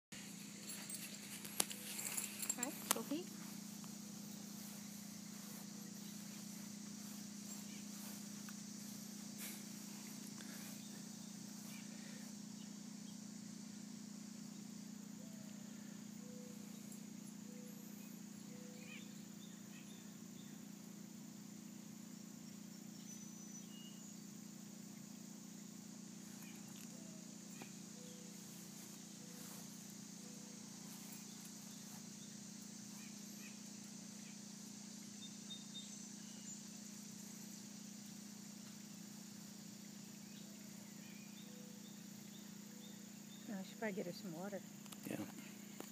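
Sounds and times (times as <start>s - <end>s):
steady low hum: 0.1s - 45.9s
high-pitched insect drone: 0.2s - 45.9s
faint high bird chirps: 0.6s - 8.2s, 16.2s - 20.7s, 22.9s - 24.3s, 26.3s - 38.2s, 40.2s - 43.8s.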